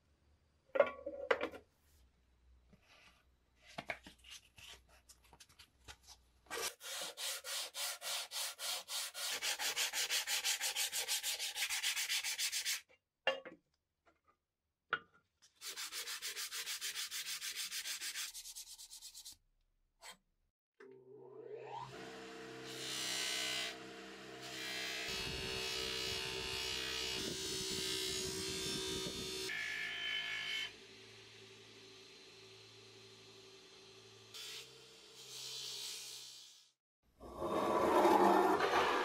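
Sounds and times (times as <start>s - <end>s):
sandpaper rubbing on metal: 6.5s - 12.8s, 15.6s - 19.4s.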